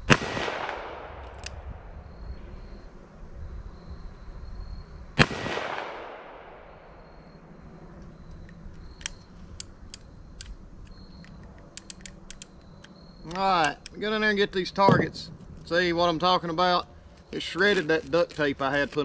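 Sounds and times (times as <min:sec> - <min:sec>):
revolver action clicking: 0:08.0 - 0:14.0.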